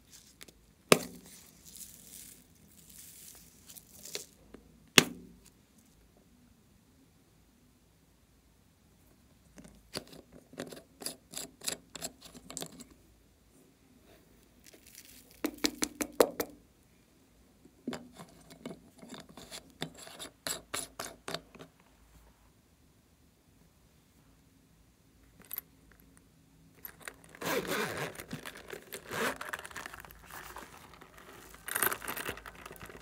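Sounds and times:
plastic container rattling: 28.0s - 33.0s.

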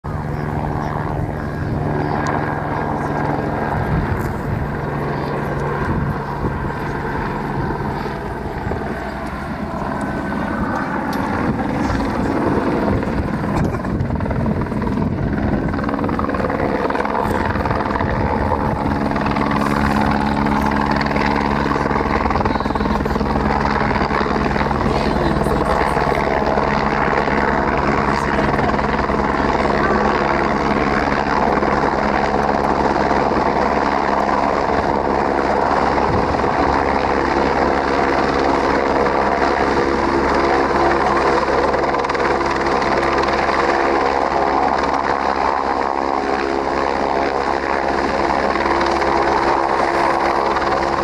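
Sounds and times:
helicopter rotor beat: 0.0s - 51.0s.

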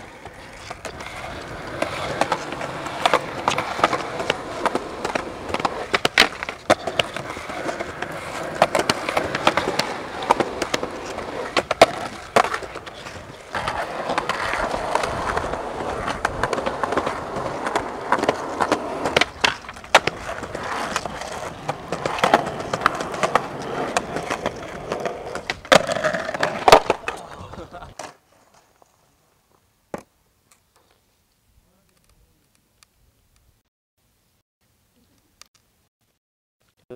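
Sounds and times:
skateboard clacking on concrete: 0.0s - 28.2s
skateboard wheels rolling on concrete: 0.0s - 33.6s.

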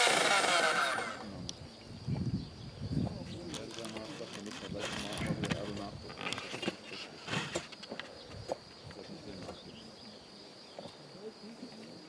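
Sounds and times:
hand tools digging and scraping: 0.0s - 1.3s, 3.5s - 7.8s.

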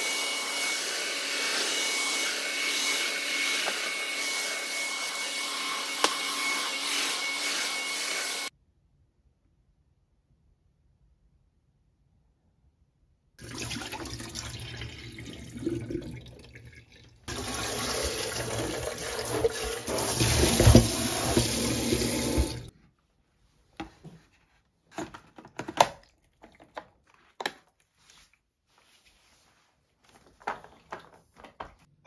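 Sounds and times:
water pouring into metal sink: 13.4s - 22.7s.

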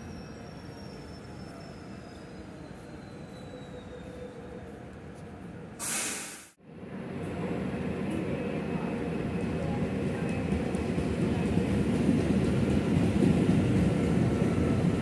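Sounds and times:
commuter train running with whine: 0.0s - 15.0s
express train rumble of wheels: 0.0s - 15.0s
loud hiss: 5.8s - 6.6s.

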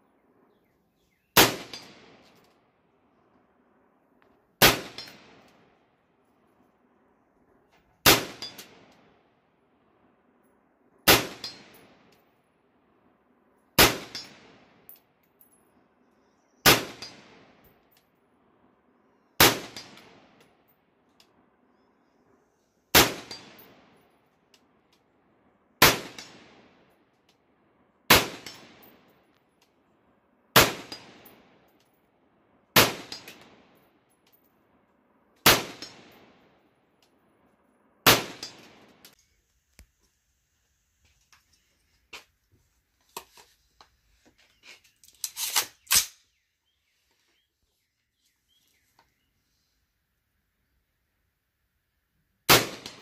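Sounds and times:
rifle shots with echo: 1.4s - 2.3s, 4.6s - 5.8s, 8.0s - 8.9s, 11.0s - 12.1s, 13.8s - 14.9s, 16.6s - 17.6s, 19.4s - 20.4s, 22.9s - 24.0s, 25.8s - 27.0s, 28.1s - 29.3s, 30.5s - 31.7s, 32.8s - 33.8s, 35.4s - 36.6s, 38.0s - 39.1s, 52.5s - 53.0s.

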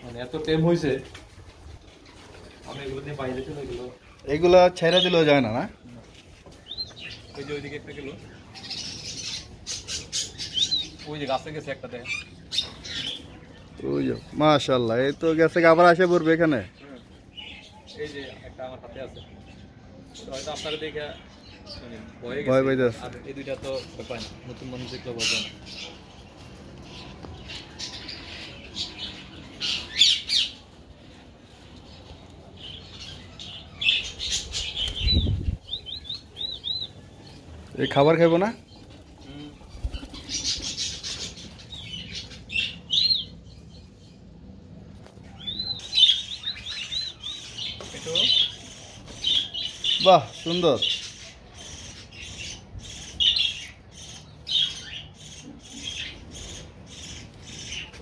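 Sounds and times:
parakeets squawking: 23.7s - 30.6s, 32.6s - 44.2s, 45.4s - 58.0s.

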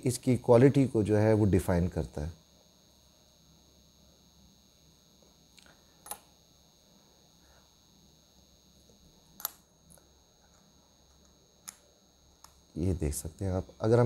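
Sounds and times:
faint steady hum: 0.0s - 14.0s
small clicks: 5.5s - 6.4s, 8.8s - 12.6s.

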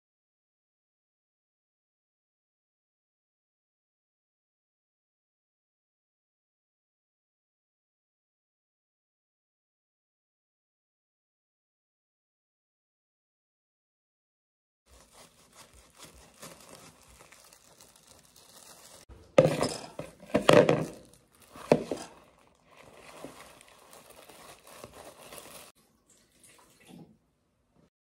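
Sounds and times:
dishes clinking: 19.3s - 21.0s
water running and splashing: 21.4s - 27.1s.

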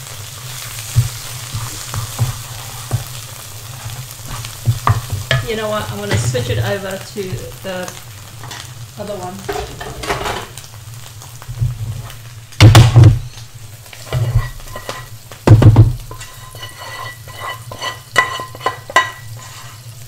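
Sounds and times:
frying sizzle: 0.0s - 20.0s
spatula scraping a frying pan: 0.3s - 6.8s, 8.3s - 8.8s, 9.4s - 10.6s, 13.2s - 20.0s
pans clunking: 9.4s - 10.7s, 14.0s - 19.8s.

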